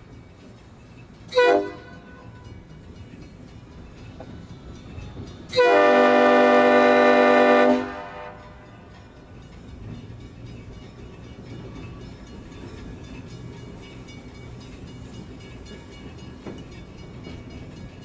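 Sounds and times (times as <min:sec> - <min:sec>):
air horn blasts: 0:01.3 - 0:02.0, 0:05.5 - 0:08.4.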